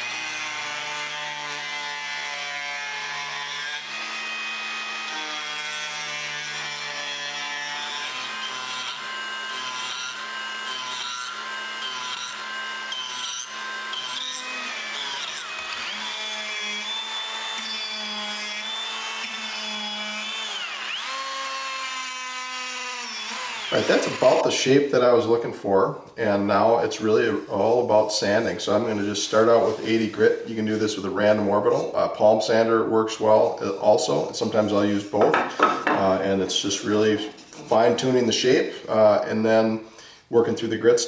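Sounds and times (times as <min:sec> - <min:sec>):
die grinder whining: 0:07.4 - 0:24.5
burr grinding wood: 0:23.0 - 0:24.6.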